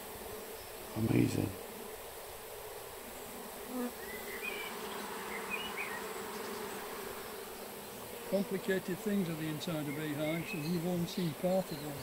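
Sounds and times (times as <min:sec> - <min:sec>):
honeybees buzzing: 0:00.0 - 0:12.0.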